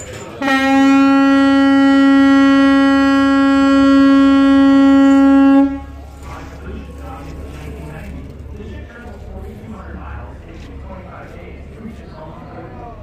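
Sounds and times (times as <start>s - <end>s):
boat horn blast: 0.4s - 6.1s.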